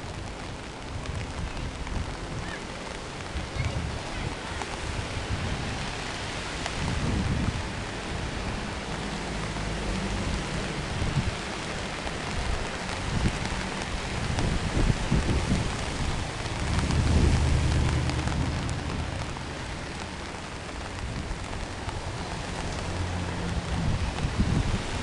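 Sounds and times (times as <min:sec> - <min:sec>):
rain hiss: 0:00.0 - 0:25.0
low rumble: 0:14.4 - 0:20.3.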